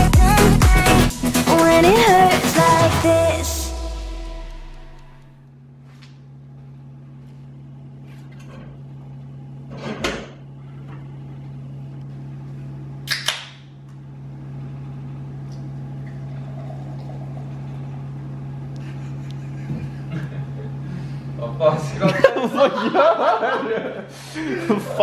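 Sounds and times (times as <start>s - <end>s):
steady low hum: 0.0s - 9.8s, 13.7s - 25.0s
beer pouring into glass: 16.1s - 17.6s.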